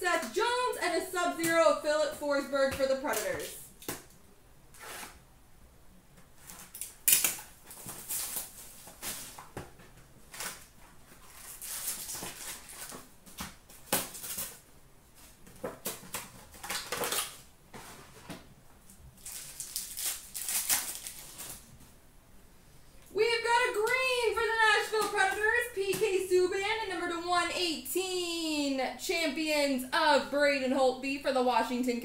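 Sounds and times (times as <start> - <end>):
pack tearing open: 6.4 - 9.4, 15.8 - 17.4, 19.2 - 21.7
foil wrappers crinkling: 6.4 - 9.6, 10.2 - 14.6, 15.2 - 18.1, 19.2 - 21.7.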